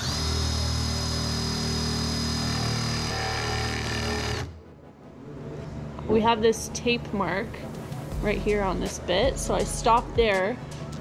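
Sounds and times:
cordless drill boring into wood: 0:00.0 - 0:04.5.

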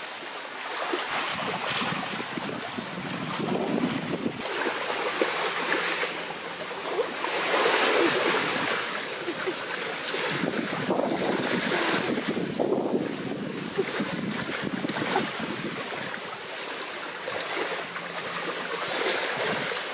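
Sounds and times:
surf washing on shore: 0:00.0 - 0:19.9
wind buffeting microphone: 0:01.2 - 0:04.9, 0:10.1 - 0:16.4.

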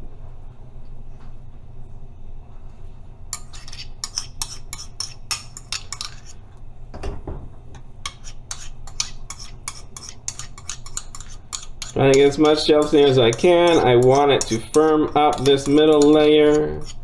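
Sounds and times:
spoon scraping ceramic bowl: 0:03.4 - 0:06.4, 0:08.0 - 0:17.0.

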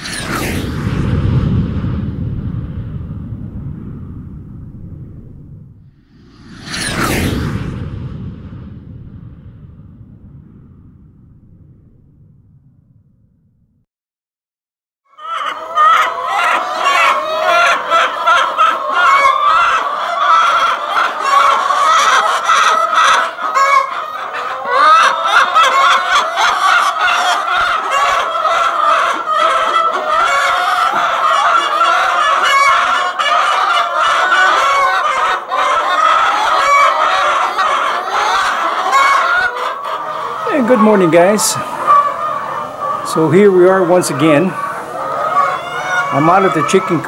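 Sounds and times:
hens clucking and squawking: 0:15.1 - 0:47.0.

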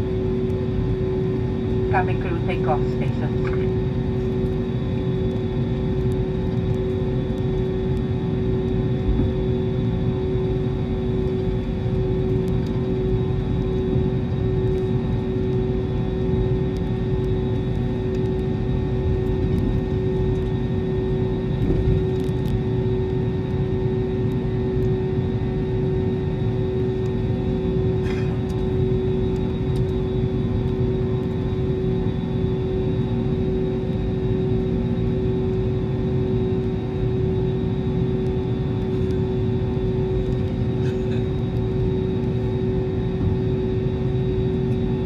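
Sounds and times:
constant tone: 0:00.0 - 0:09.3
jet engine cabin drone: 0:00.0 - 0:45.0.

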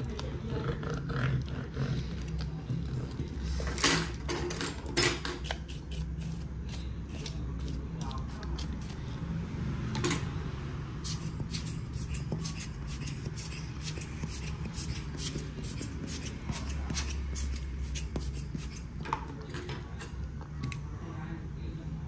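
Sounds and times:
small tools clicking and scraping: 0:02.2 - 0:09.0.

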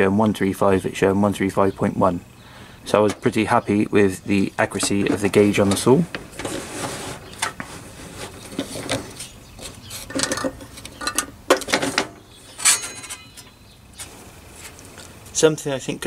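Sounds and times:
metallic clicks and rattles: 0:10.0 - 0:13.6.

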